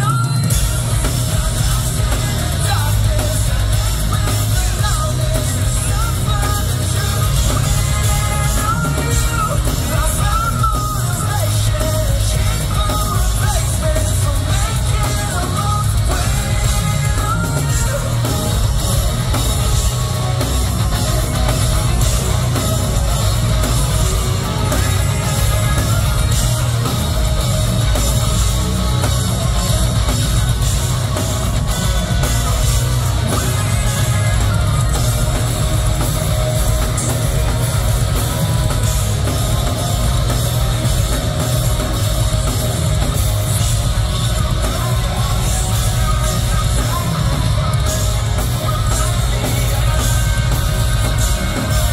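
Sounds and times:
bass guitar: 0.0 - 51.9
drum kit: 0.0 - 51.9
electric guitars: 0.0 - 51.9
person singing: 0.0 - 51.9.

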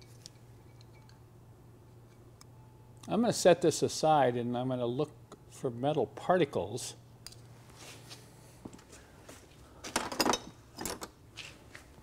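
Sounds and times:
metal parts clinking and knocking: 0.0 - 1.2, 9.9 - 11.1
clatter of metal parts: 9.9 - 11.1.

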